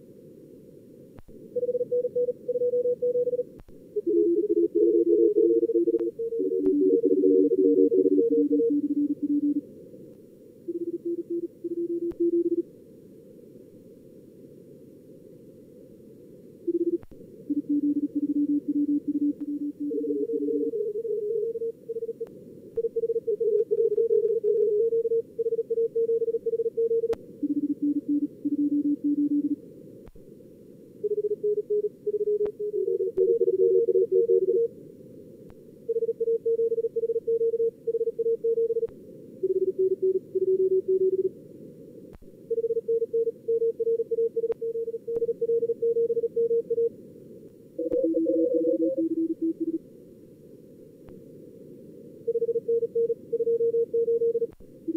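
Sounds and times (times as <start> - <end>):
morse code tones: 4.0 - 9.6, 31.1 - 34.7, 47.8 - 49.8.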